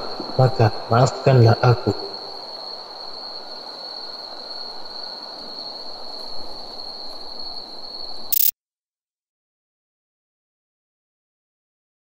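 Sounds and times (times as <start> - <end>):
crickets trilling: 0.0 - 8.5
short burst of noise: 8.3 - 8.5.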